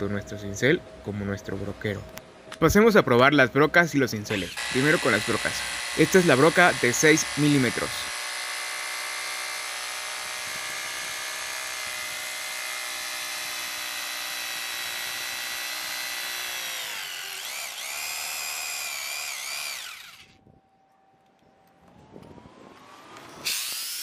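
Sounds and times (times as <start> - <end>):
hammer drill boring into concrete: 4.2 - 20.4, 23.4 - 24.0.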